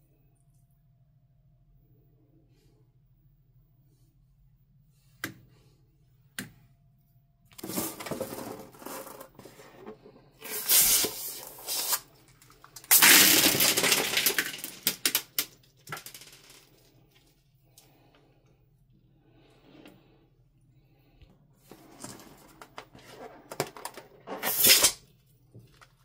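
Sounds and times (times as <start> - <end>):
plastic beads clattering onto tray: 10.5 - 16.8.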